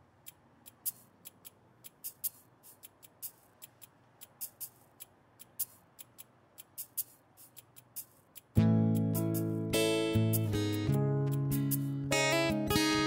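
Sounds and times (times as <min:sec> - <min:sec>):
high-pitched clicks and hisses: 0:00.8 - 0:08.5.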